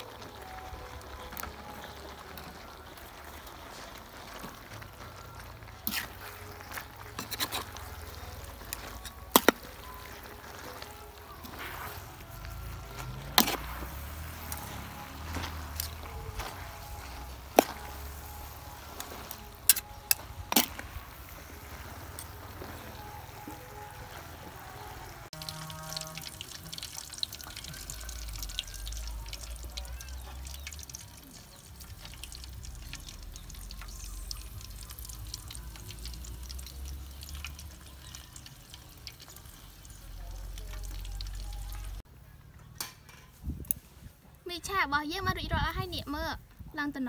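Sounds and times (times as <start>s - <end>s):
utensils scraping a steel wok: 5.8s - 22.9s.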